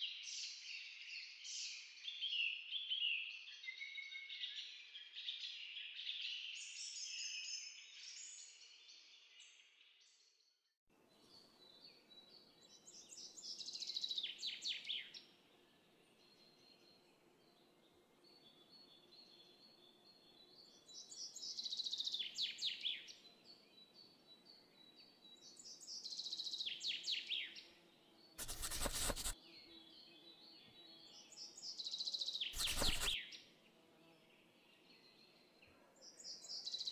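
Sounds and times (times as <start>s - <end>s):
songbird singing: 11.1s - 33.5s, 34.2s - 36.9s.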